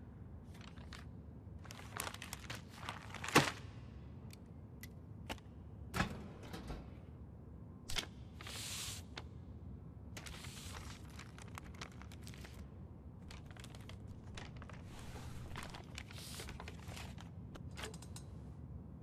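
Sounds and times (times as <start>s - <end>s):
newspaper pages rustling: 0.5s - 3.6s, 10.2s - 17.4s.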